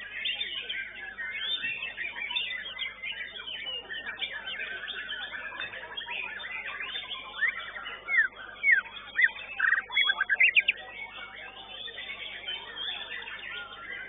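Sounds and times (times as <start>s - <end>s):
bird whistling song: 0.0s - 14.0s
chatter of other birds: 0.0s - 14.0s.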